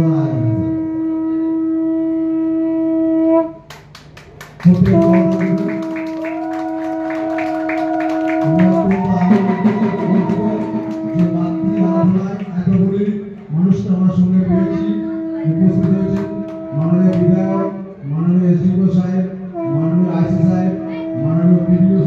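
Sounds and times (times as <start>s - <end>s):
conch shells blown: 0.4s - 22.0s
hands clapping in rhythm: 3.7s - 13.7s, 15.8s - 17.4s.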